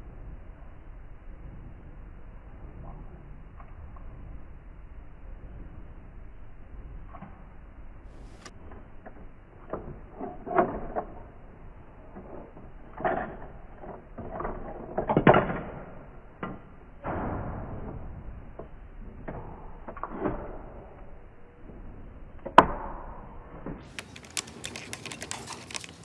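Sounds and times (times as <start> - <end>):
plastic toy parts clicking: 23.9 - 26.0.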